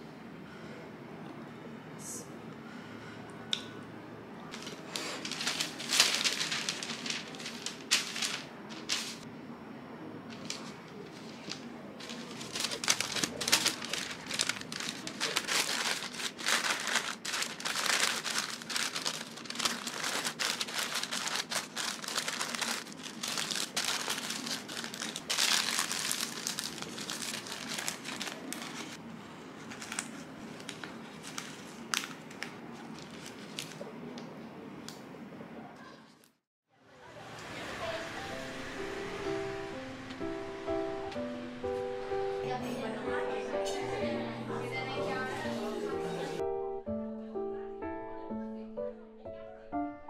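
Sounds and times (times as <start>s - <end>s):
wrapping paper crinkling: 4.5s - 9.2s, 10.3s - 29.0s, 29.6s - 33.9s.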